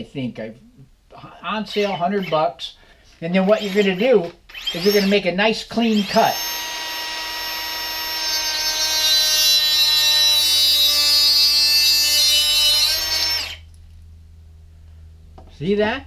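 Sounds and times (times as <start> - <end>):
cut-off tool motor whine: 3.5 - 5.2, 5.8 - 13.6.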